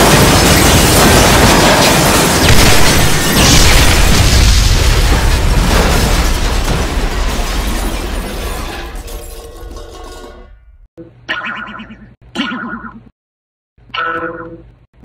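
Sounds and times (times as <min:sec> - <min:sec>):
explosion with rumble: 0:00.0 - 0:09.2.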